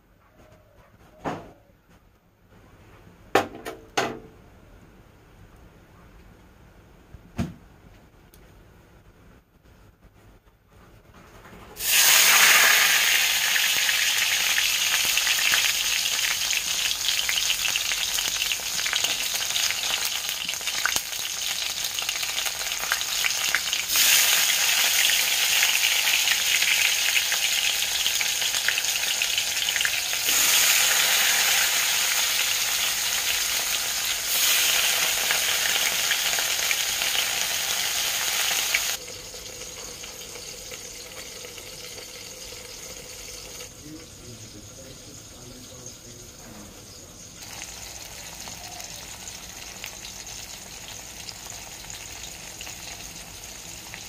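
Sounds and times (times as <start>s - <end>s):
fish frying in oil sizzle: 11.8s - 43.7s, 47.4s - 54.0s.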